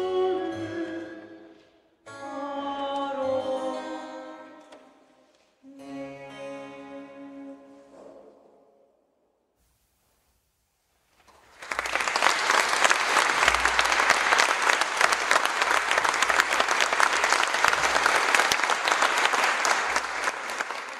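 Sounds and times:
audience applause: 11.3s - 20.9s.

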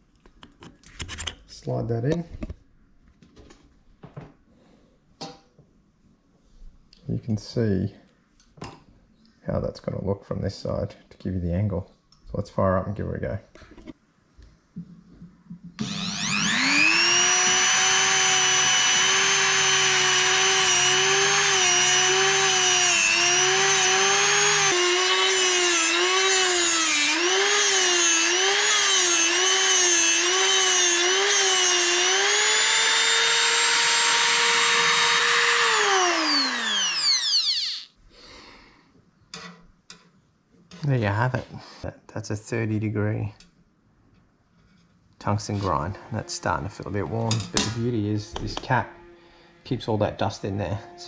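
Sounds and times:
electrode grinding against wheel: 15.8s - 37.9s
grinder motor whining: 15.8s - 37.9s.

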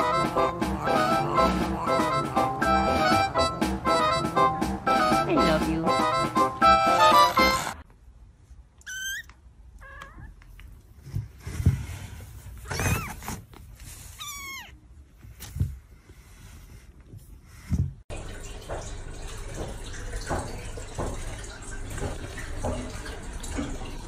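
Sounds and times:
kittens mewing: 0.0s - 3.2s, 8.8s - 10.4s, 14.1s - 14.8s.

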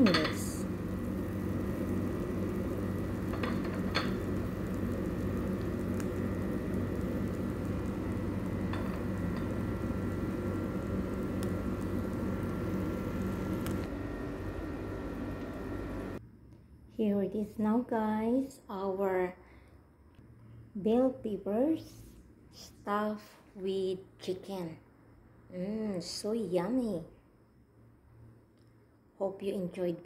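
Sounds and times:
kitchen appliance humming: 0.0s - 16.2s.

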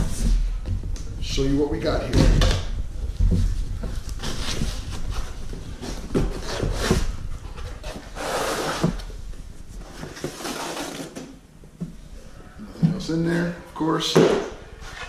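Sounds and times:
cardboard tube sliding: 3.2s - 11.3s
cardboard scraping and rustling: 3.2s - 11.4s.

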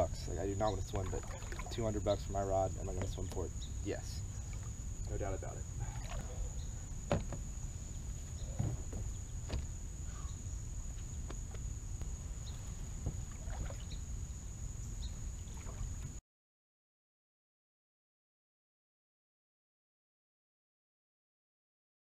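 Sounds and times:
wind rumble on microphone: 0.0s - 16.2s
stepping into shallow water: 0.9s - 1.8s, 13.0s - 14.0s
knocks on kayak hull: 7.1s - 7.4s.

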